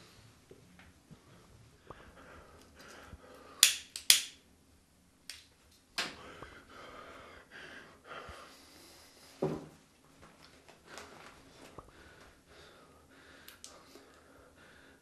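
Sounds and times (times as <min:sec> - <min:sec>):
person breathing: 0:00.0 - 0:00.5, 0:01.1 - 0:03.8, 0:06.1 - 0:09.6, 0:10.8 - 0:15.0
cigarette lighter clicking: 0:03.6 - 0:04.4.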